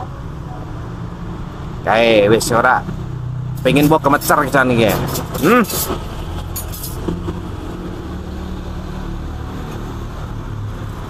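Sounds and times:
vehicle engine rumbling: 2.4 - 8.5.

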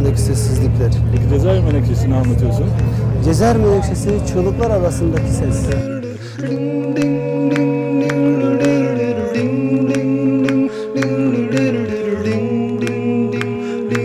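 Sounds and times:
man chanting low notes: 0.0 - 6.6.

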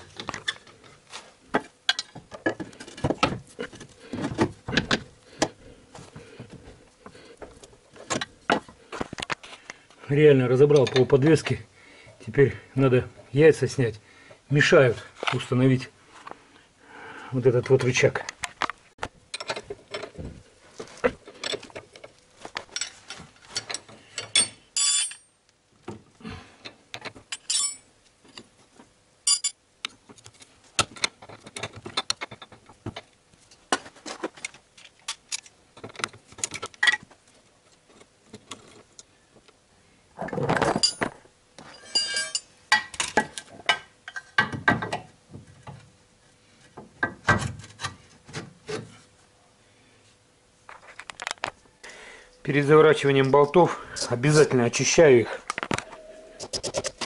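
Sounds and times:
tools clicking and knocking on metal: 1.5 - 5.6, 19.3 - 20.2
ringing metallic clinks: 24.3 - 25.3, 41.7 - 42.5.

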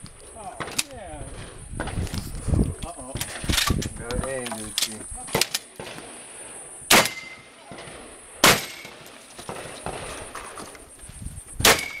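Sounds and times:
shotgun shot: 6.9 - 10.2, 11.6 - 12.0.

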